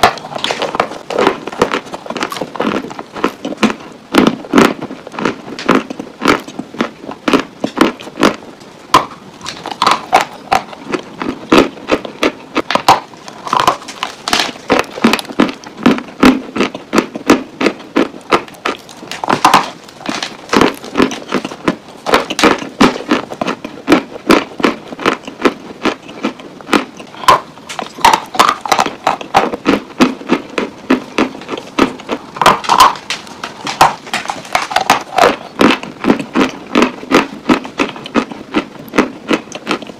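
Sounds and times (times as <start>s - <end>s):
clay crunching while chewed: 0.0s - 39.9s.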